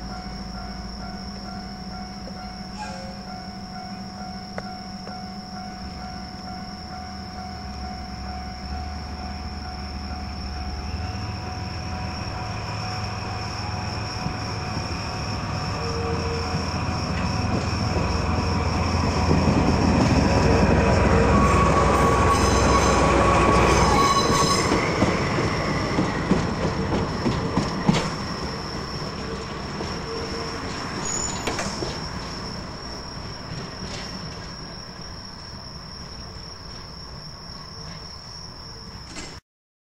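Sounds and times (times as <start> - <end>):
train rumbling past: 0.0 - 39.1
wheel squeal: 2.5 - 3.3, 21.1 - 26.0, 27.1 - 32.6
rail-joint clicks: 16.6 - 20.3, 21.8 - 32.6, 33.2 - 34.7, 39.0 - 39.4.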